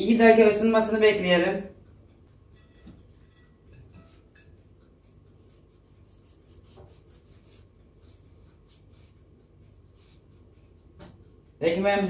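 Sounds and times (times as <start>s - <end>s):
knife sawing through bread bun: 5.4s - 9.2s.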